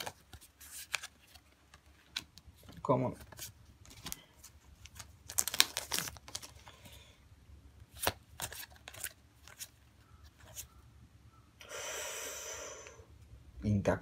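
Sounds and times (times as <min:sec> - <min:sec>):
cards snapping and sliding: 0:00.0 - 0:02.3, 0:07.9 - 0:09.7
cards rustling: 0:00.0 - 0:07.1, 0:07.8 - 0:10.8.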